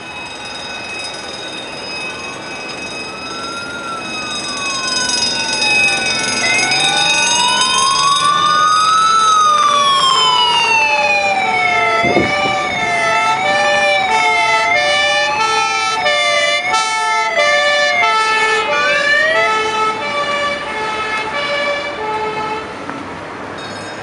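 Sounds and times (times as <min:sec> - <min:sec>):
emergency sirens wailing: 0:00.0 - 0:22.9
steady horn tones: 0:11.4 - 0:22.8.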